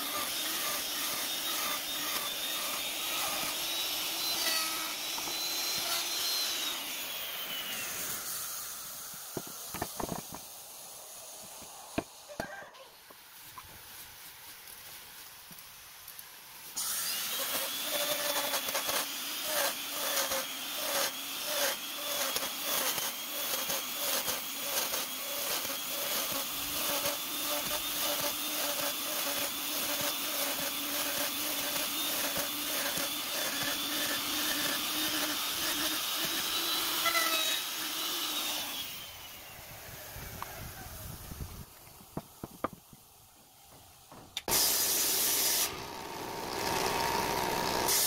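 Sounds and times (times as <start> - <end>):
router cutting wood: 0.0 - 10.5, 16.8 - 39.6, 44.4 - 48.0
router motor whine: 0.0 - 10.5, 16.8 - 41.6, 44.4 - 48.0.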